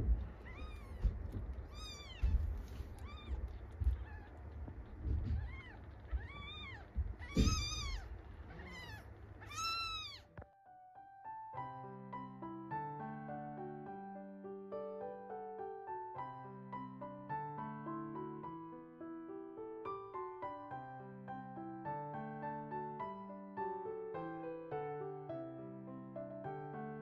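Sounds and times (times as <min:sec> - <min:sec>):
low rustling and bumps: 0:00.0 - 0:10.0
kittens mewing: 0:00.0 - 0:10.4
soft piano music: 0:00.0 - 0:27.0.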